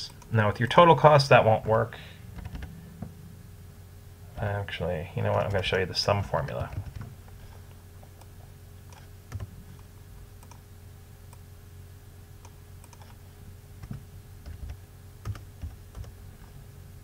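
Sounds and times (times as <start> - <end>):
faint steady hum: 0.0 - 17.0
mouse clicks: 12.4 - 13.2.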